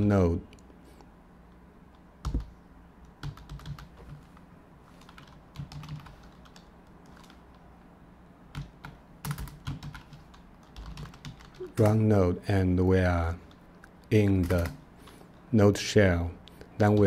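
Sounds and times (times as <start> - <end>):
computer keyboard clicks: 1.9 - 4.3, 5.0 - 7.6, 8.5 - 11.9, 13.5 - 14.8.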